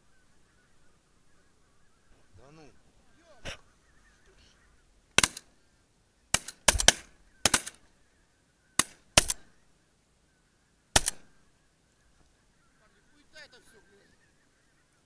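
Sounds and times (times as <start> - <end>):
shotgun shots: 5.2 - 5.4, 6.4 - 7.8, 8.8 - 9.4, 11.0 - 11.2.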